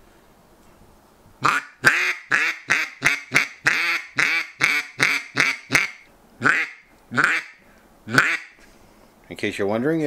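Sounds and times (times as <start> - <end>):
duck call quacks: 1.4 - 8.6.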